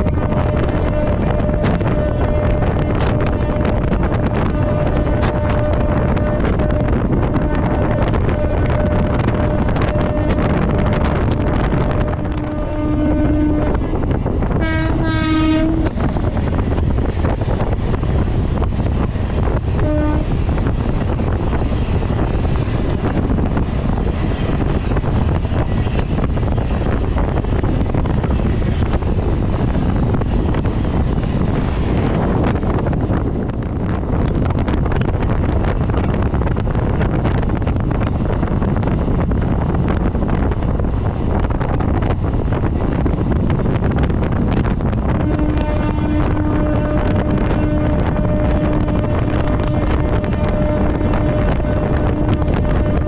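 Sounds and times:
train horn blasts: 0.0s - 16.2s, 19.8s - 20.6s, 45.0s - 53.0s
train running rumble: 0.0s - 53.0s
wind buffeting microphone: 0.0s - 53.0s.

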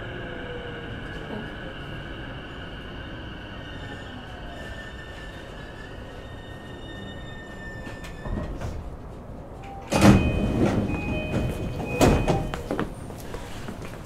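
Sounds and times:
train doors sliding open: 3.8s - 13.7s.

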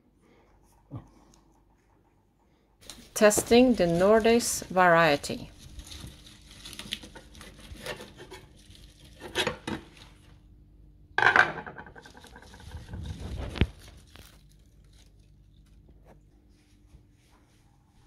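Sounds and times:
lettuce leaves rustling: 2.9s - 9.3s, 12.1s - 15.8s.

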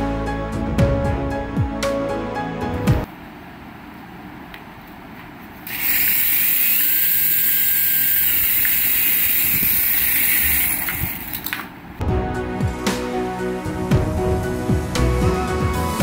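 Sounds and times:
small rotor motors whirring: 5.6s - 11.5s.

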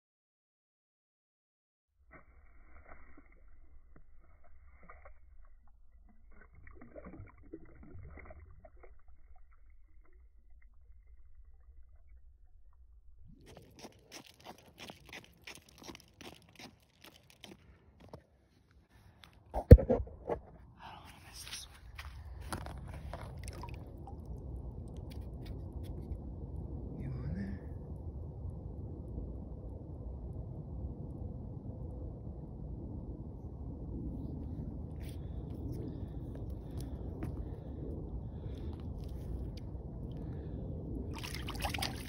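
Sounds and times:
crunching on snow and ice: 13.4s - 18.2s, 21.0s - 23.9s.

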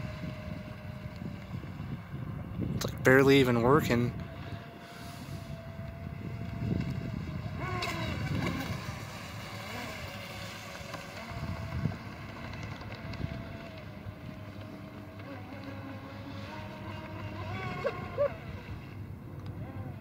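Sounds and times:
rc boat electric motor whining: 0.0s - 2.7s, 3.5s - 20.0s
wind noise on microphone: 0.0s - 14.5s.

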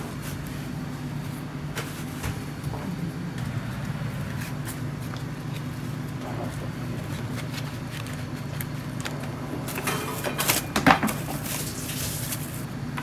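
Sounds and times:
cling film crinkling: 6.9s - 9.3s.

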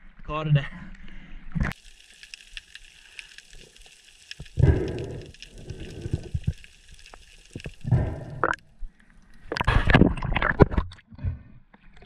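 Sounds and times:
water gurgling and sloshing: 1.5s - 12.0s
water splashing: 1.6s - 8.7s.

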